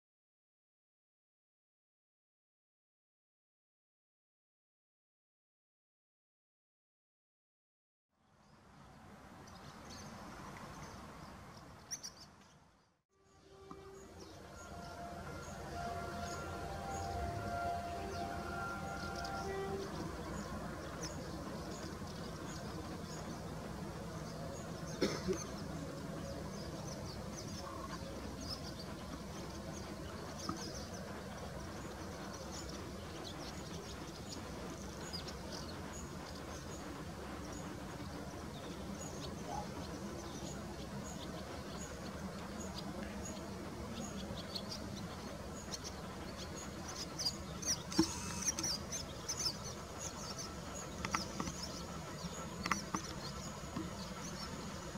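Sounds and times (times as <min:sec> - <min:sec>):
birds chirping: 0:08.9 - 0:54.9
diesel locomotive drone: 0:13.2 - 0:54.9.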